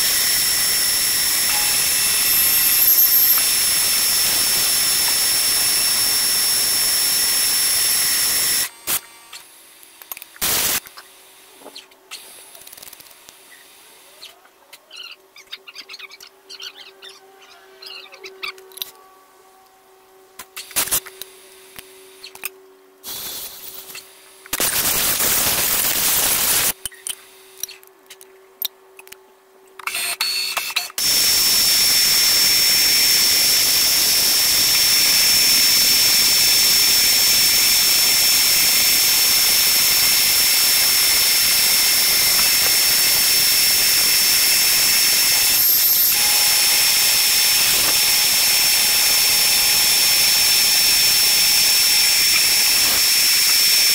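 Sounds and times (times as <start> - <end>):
milling machine cutting metal: 0.0 - 9.2, 31.0 - 53.9.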